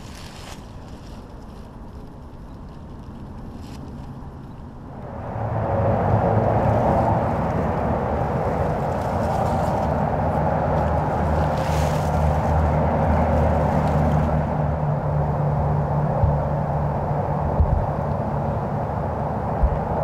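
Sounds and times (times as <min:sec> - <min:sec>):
low hum: 0:00.0 - 0:20.0
outdoor background rumble: 0:00.0 - 0:20.0.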